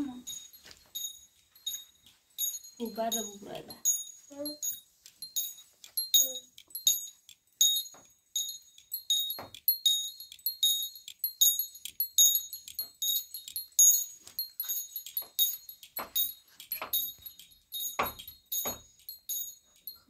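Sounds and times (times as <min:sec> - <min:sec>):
metallic jingling: 0:00.0 - 0:20.0.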